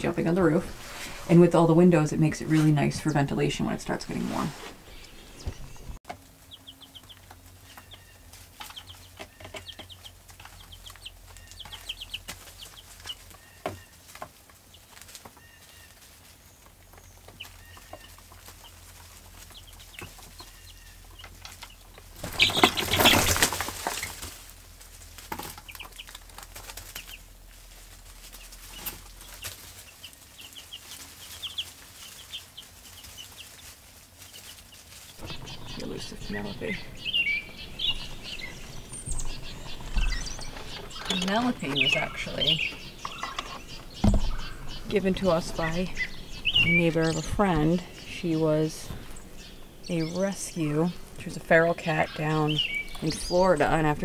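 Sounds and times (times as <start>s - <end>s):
chicks peeping: 0.0s - 54.0s
scratches in wood shavings: 0.5s - 1.6s, 3.9s - 5.8s, 6.9s - 49.5s
wings flapping: 17.4s - 48.0s.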